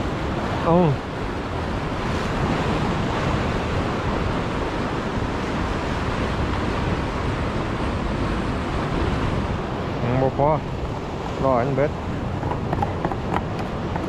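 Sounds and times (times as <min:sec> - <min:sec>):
surf washing over concrete: 0:00.0 - 0:14.0
wind buffeting microphone: 0:00.0 - 0:14.0.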